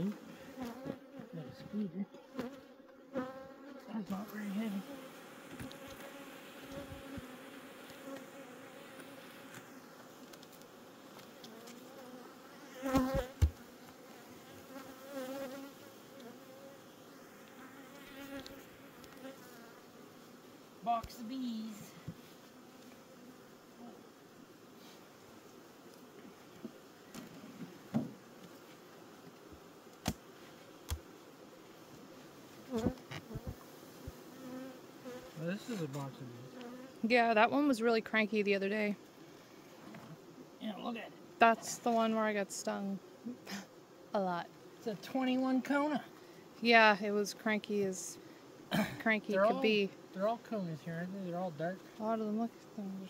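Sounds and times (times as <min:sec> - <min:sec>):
bee flying close: 0:00.0 - 0:38.4
bees buzzing: 0:00.0 - 0:53.0
wooden hive boxes knocking: 0:12.9 - 0:13.6.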